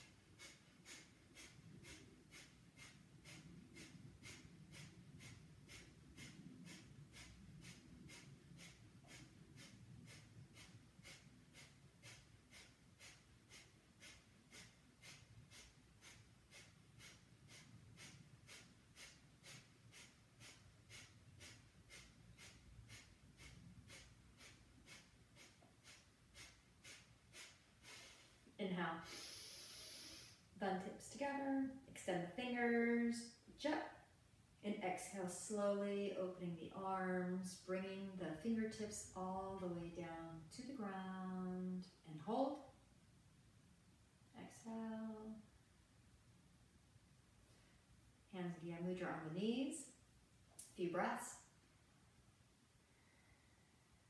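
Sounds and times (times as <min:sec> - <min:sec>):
rapid rhythmic nose breathing: 0:00.0 - 0:31.2.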